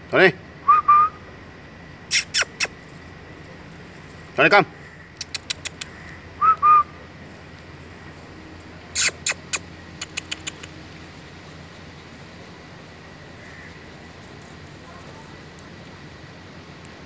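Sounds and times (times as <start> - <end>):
low background hum: 0.0 - 17.0
sharp clicks: 5.2 - 6.2, 9.0 - 11.0.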